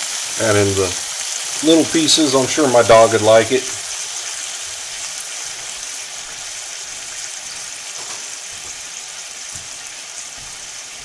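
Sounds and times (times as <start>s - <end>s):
chicken sizzling in frying pan: 0.0s - 11.0s.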